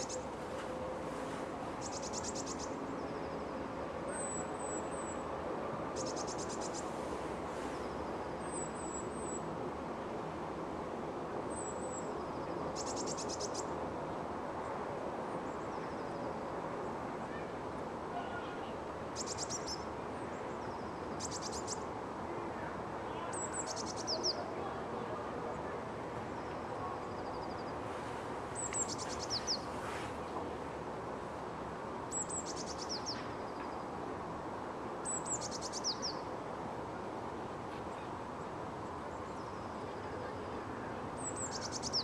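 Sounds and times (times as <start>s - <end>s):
small birds trilling and chirping: 1.8s - 3.5s, 19.2s - 21.9s, 23.2s - 24.5s, 26.4s - 29.9s, 32.1s - 33.9s, 35.0s - 36.3s, 41.2s - 42.0s.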